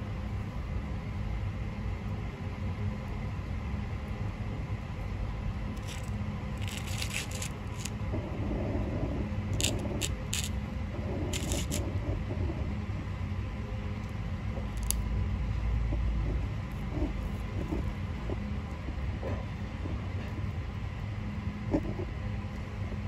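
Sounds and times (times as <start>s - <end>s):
steady low rumble: 4.7s - 23.0s
tortoises crunching leafy greens: 5.8s - 8.0s, 9.5s - 12.0s.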